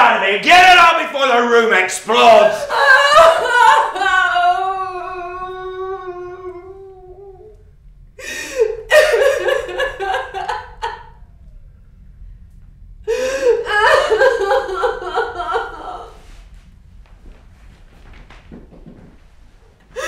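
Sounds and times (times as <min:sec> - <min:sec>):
woman sobbing and gasping: 0:02.7 - 0:07.5, 0:08.2 - 0:11.0, 0:13.1 - 0:16.4.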